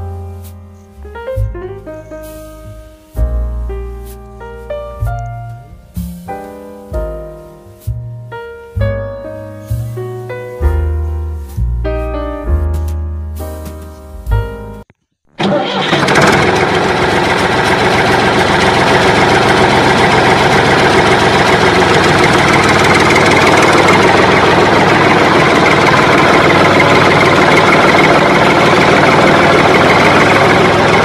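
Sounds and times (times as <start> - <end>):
engine starting and running: 15.3 - 31.0.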